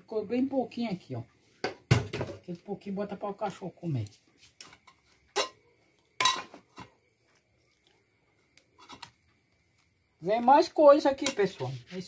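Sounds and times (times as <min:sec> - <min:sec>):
dishes and utensils clinking: 0:04.8 - 0:06.9.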